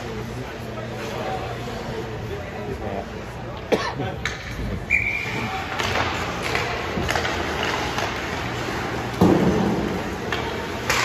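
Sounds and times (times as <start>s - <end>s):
sticks and puck clacking: 3.5s - 4.8s, 5.4s - 11.0s
skates scraping on ice: 5.2s - 11.0s.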